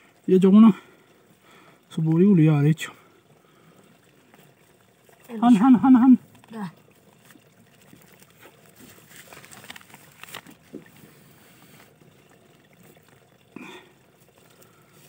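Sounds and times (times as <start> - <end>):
light crackles and ticks: 0.0 - 15.0
sack rustling: 8.7 - 10.7.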